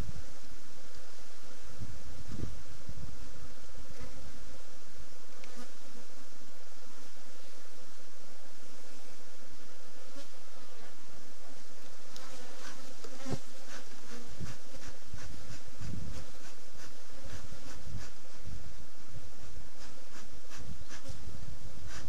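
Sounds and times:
bees buzzing: 8.5 - 22.0
bee smoker bellows puffs: 12.0 - 18.5.

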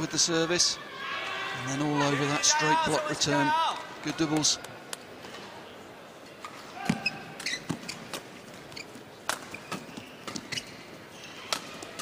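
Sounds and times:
shoes squeaking on court: 6.4 - 11.8.

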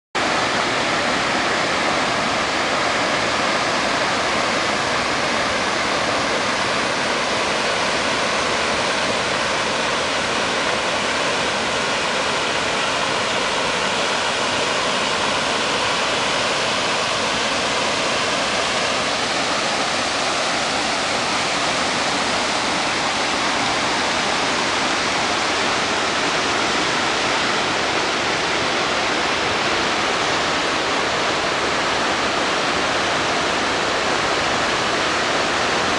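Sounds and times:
water rushing over rocks: 0.2 - 35.9.

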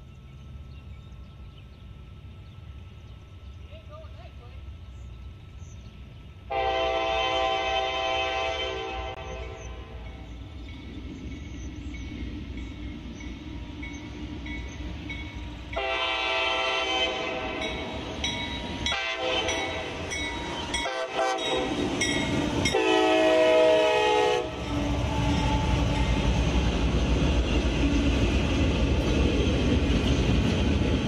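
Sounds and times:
train rumbling: 0.0 - 31.0
locomotive air horn blasts: 6.5 - 10.0, 15.8 - 17.7, 18.8 - 20.0, 20.8 - 21.8, 22.7 - 24.6.

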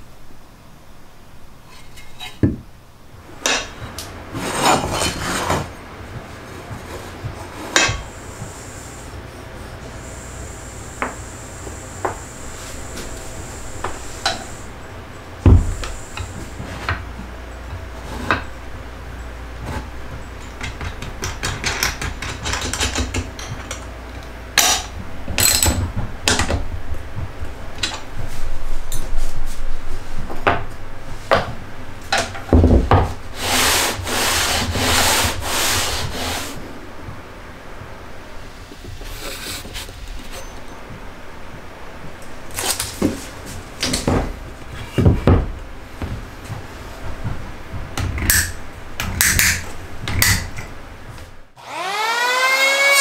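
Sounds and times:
rubbing and scraping: 3.8 - 7.8, 33.1 - 36.7, 38.8 - 40.7.

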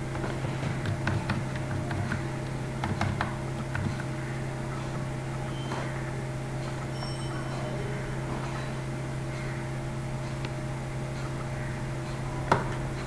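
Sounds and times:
steady low hum: 0.0 - 13.0
computer mouse clicking: 0.7 - 4.2.

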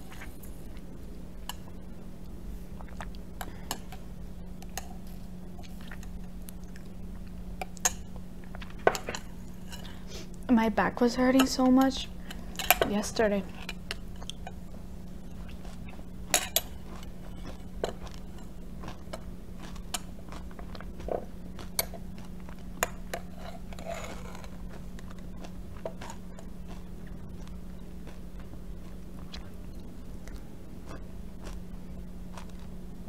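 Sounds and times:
steady low hum: 0.0 - 33.0
granola crunching: 15.3 - 29.6, 30.2 - 32.8.

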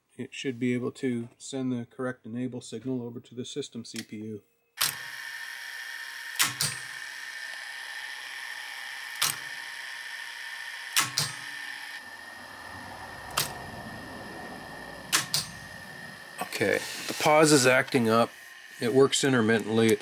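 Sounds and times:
tape mechanism clicks: 4.8 - 5.1, 6.3 - 7.6, 9.1 - 9.6, 10.9 - 11.5, 13.3 - 13.6, 15.1 - 15.6
low rumble: 12.0 - 16.5
steady hiss: 12.1 - 20.0.

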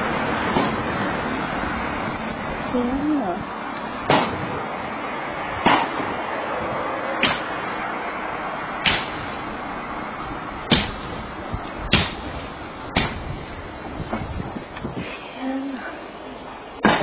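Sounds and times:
steady background noise: 0.0 - 17.0
blows smashing into car body: 8.8 - 9.4, 10.6 - 11.3, 11.9 - 15.1.

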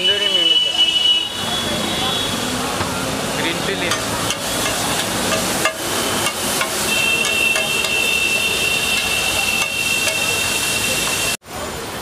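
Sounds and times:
vegetables sizzling on griddle: 2.8 - 11.4
metal spatulas scraping griddle: 3.9 - 11.2.

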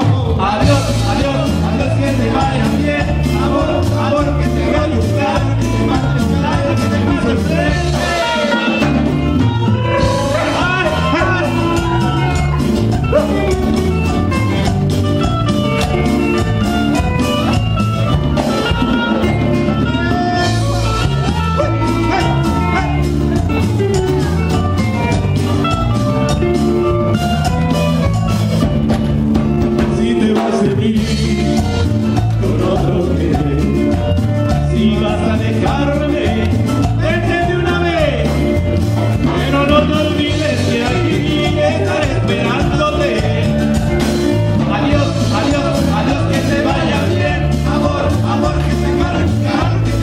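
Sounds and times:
person singing: 0.0 - 26.9, 29.6 - 50.0
live band playing dance music: 0.0 - 50.0.

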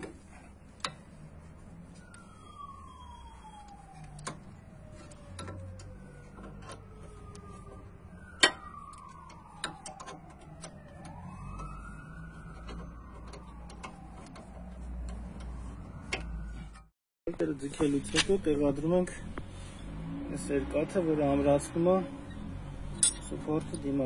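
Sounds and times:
siren wailing: 0.1 - 16.9.

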